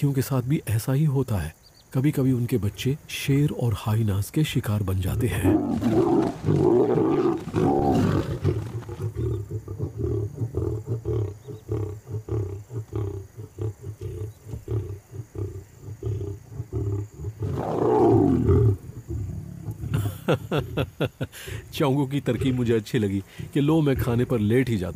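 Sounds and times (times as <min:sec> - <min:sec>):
lion snarling: 0:05.1 - 0:20.9
lion growling in low pulses: 0:05.2 - 0:20.1.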